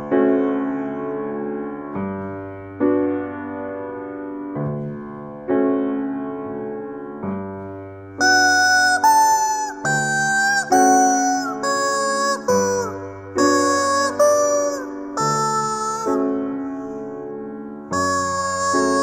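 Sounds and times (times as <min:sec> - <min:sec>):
slow piano chords: 0:00.0 - 0:19.0
rubber chicken squealing: 0:08.2 - 0:17.0, 0:17.9 - 0:19.0.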